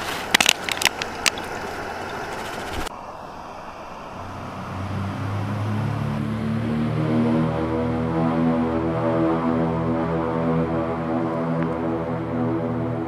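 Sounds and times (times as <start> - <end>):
low sustained music notes: 3.0 - 13.0.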